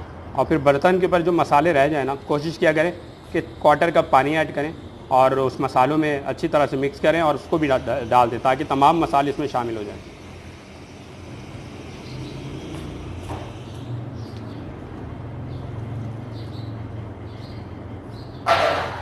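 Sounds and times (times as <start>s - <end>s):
low motor hum: 6.4s - 18.3s.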